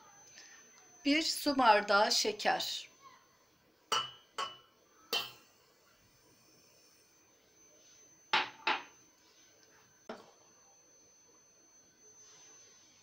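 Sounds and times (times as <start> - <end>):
glass clinking against steel pot: 3.9 - 5.5.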